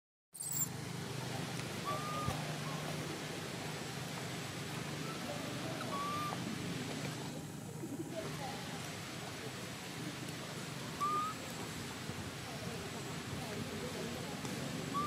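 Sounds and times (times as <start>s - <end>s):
high whistled calls: 0.4s - 0.7s, 1.8s - 2.9s, 5.0s - 6.4s, 11.0s - 11.5s
low hum and hiss: 0.4s - 15.0s.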